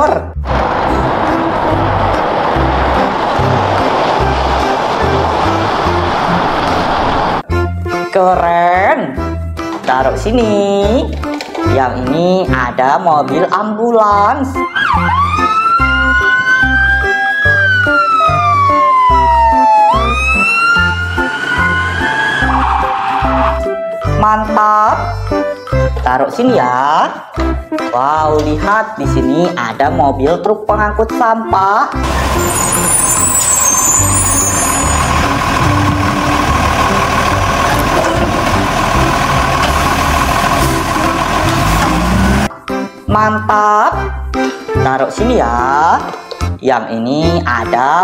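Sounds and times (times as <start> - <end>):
garbage truck diesel engine rumble: 0.5 - 7.5, 15.0 - 23.7, 32.0 - 42.5
background music with steady beat: 7.4 - 33.1, 40.5 - 48.0
ambulance siren wailing: 14.6 - 23.8, 32.0 - 42.5
high squeal: 20.0 - 23.6, 32.1 - 36.3.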